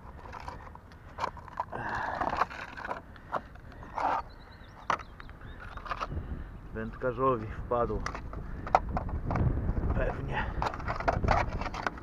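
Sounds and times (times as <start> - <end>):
metal tin scraping rattle: 7.9 - 12.0.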